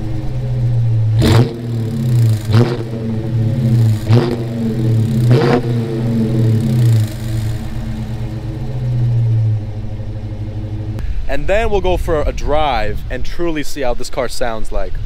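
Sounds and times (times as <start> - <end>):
car engine idling and revving: 0.0 - 11.5.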